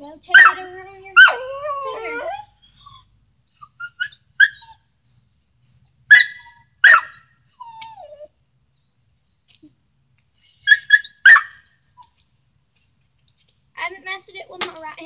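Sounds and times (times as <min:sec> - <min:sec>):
dog barking: 0:00.3 - 0:01.3, 0:06.1 - 0:07.2, 0:10.7 - 0:11.6
dog yipping: 0:00.3 - 0:08.3, 0:10.3 - 0:12.2
dog whining: 0:00.3 - 0:12.2.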